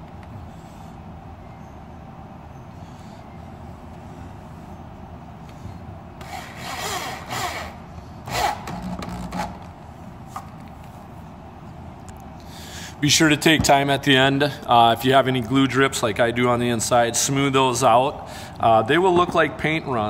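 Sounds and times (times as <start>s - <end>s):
cordless drill driving screw into wood: 6.2s - 9.6s.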